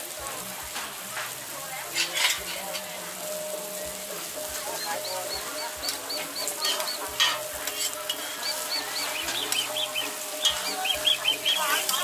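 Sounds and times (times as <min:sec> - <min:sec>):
buns sizzling on a griddle: 0:00.0 - 0:12.0
metal tongs clicking on griddle: 0:00.7 - 0:03.0, 0:04.5 - 0:12.0
bird chirping: 0:04.7 - 0:07.2, 0:08.3 - 0:12.0.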